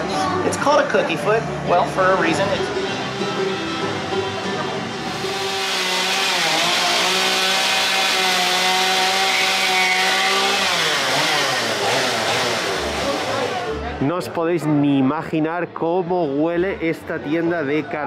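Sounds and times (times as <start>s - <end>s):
chainsaw running at high revs: 5.0s - 13.8s.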